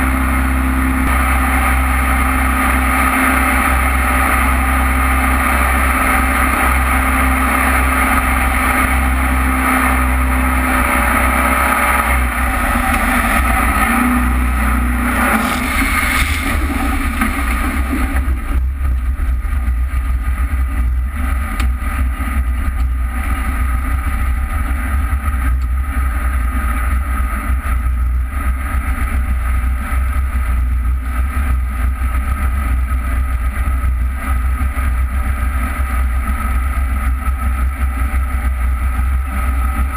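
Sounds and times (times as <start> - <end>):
boat engine running: 0.0 - 39.9
wind: 0.0 - 39.9
rushing water: 15.1 - 18.6.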